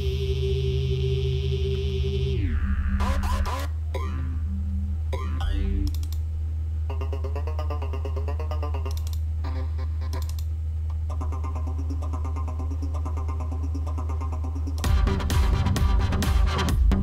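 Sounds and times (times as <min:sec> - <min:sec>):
low bass drone: 0:00.0 - 0:06.0, 0:11.2 - 0:17.0
stuttering vocal-like synth tones: 0:00.6 - 0:06.0, 0:06.9 - 0:09.9.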